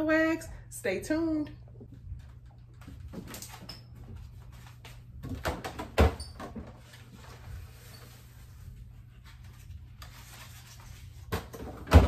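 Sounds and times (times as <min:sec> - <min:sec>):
items clicking and knocking in fridge: 0:05.2 - 0:06.9, 0:11.2 - 0:12.0.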